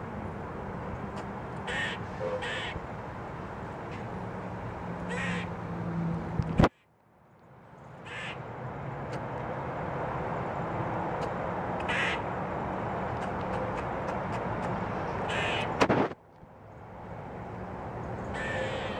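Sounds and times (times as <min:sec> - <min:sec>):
squirrel alarm calls: 0:01.2 - 0:02.8, 0:05.1 - 0:05.5, 0:08.0 - 0:08.4, 0:11.8 - 0:12.3, 0:15.3 - 0:15.8, 0:18.3 - 0:18.9.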